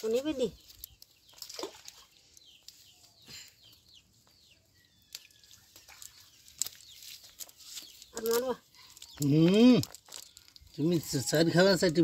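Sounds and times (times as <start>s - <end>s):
cast net rustling and clicking: 0.0s - 3.1s, 5.0s - 11.1s
birds chirping: 0.0s - 12.0s.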